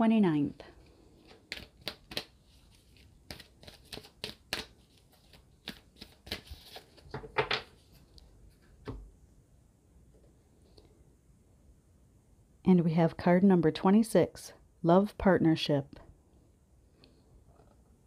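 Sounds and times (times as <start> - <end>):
cards being shuffled: 0.8 - 9.0.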